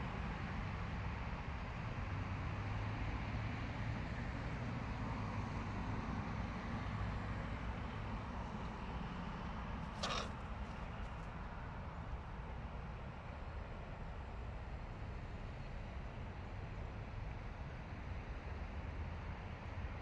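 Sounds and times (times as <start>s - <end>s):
distant road traffic rumble: 4.9s - 17.6s.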